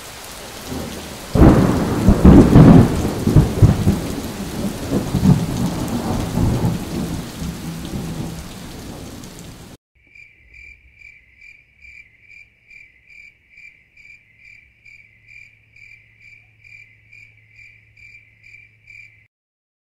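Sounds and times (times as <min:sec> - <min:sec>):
heavy rain: 0:00.0 - 0:09.8
thunder rumbling: 0:00.4 - 0:09.8
cricket chirping: 0:10.0 - 0:19.3.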